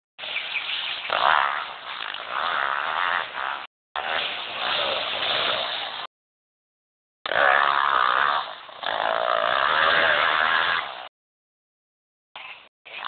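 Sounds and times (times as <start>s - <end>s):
motorcycle engine revving: 1.0s - 6.1s, 7.3s - 11.1s.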